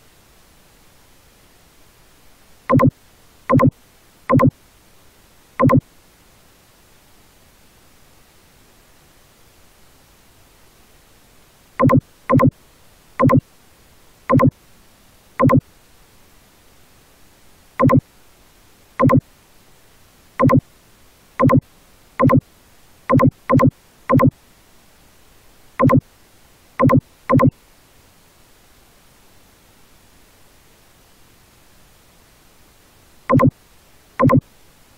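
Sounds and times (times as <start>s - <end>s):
faint steady hiss: 0.0s - 34.9s
short electronic beeps: 2.7s - 2.9s, 3.5s - 3.7s, 4.3s - 4.5s, 5.6s - 5.8s, 11.8s - 12.5s, 13.2s - 13.4s, 14.3s - 14.5s, 15.4s - 15.6s, 17.8s - 18.0s, 19.0s - 19.2s, 20.4s - 20.6s, 21.4s - 21.6s, 22.2s - 22.4s, 23.1s - 24.3s, 25.8s - 26.0s, 26.8s - 27.5s, 33.3s - 33.5s, 34.2s - 34.4s.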